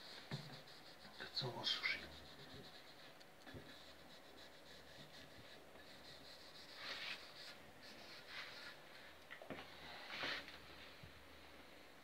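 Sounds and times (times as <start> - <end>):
cloth rubbing on wood: 0.0 - 8.9.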